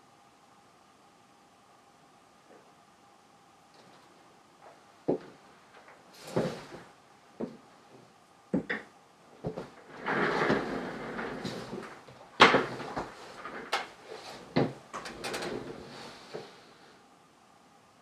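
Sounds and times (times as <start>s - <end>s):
office chair pulled out: 6.1s - 6.9s, 9.4s - 16.9s
rustling: 9.4s - 17.0s.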